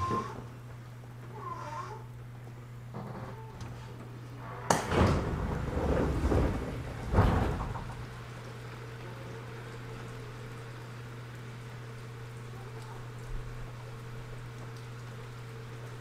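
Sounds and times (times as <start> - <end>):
low electrical hum: 0.0 - 16.0
doors sliding rush: 3.7 - 8.4
train door thuds: 4.7 - 8.1.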